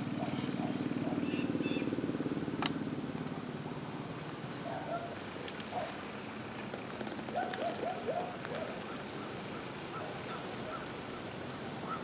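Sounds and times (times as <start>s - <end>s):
faint outdoor hiss: 0.0s - 12.0s
small sharp clicks: 5.4s - 5.8s.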